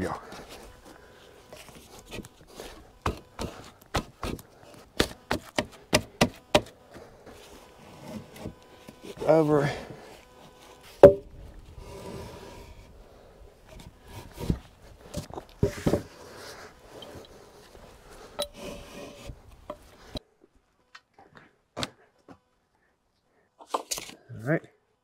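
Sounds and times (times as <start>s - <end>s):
wooden timbers knocking: 11.0s - 11.3s.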